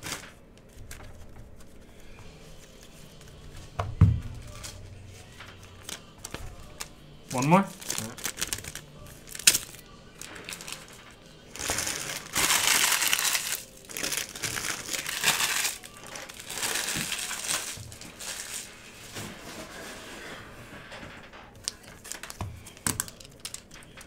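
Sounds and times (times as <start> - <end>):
plastic wrapper crinkling: 0.0 - 1.8, 4.4 - 19.2, 21.6 - 24.0.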